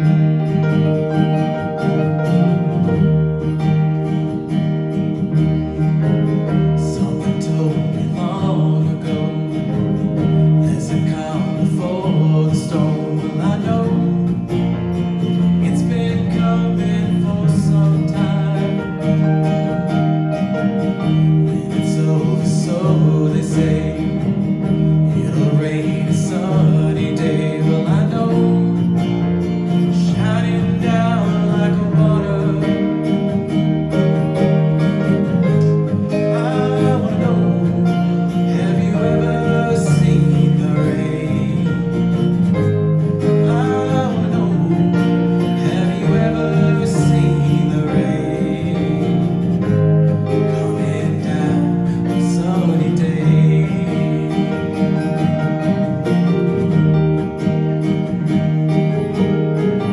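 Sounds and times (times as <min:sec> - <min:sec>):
acoustic guitar strumming: 0:00.0 - 0:59.9
keyboard: 0:00.0 - 0:59.9
man singing into microphone: 0:06.8 - 0:14.6, 0:15.6 - 0:19.6, 0:21.4 - 0:29.0, 0:29.9 - 0:33.4, 0:35.4 - 0:55.8.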